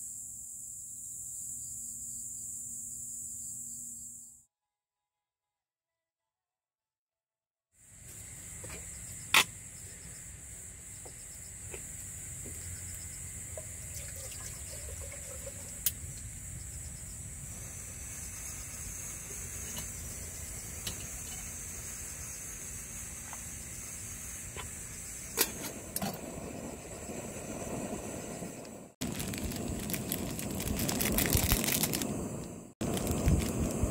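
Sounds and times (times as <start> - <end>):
gas stove burning: 17.3 - 33.9.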